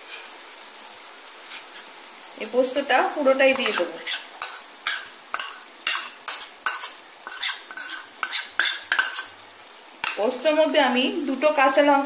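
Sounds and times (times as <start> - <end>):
spoon scraping and knocking bowl: 3.6 - 9.3.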